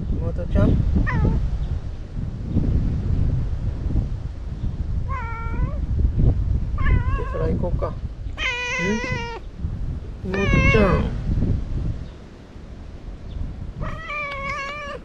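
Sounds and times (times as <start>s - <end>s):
cat meowing: 1.1s - 1.4s, 5.1s - 5.8s, 6.8s - 7.4s, 8.4s - 9.4s, 10.3s - 11.1s, 13.8s - 15.0s.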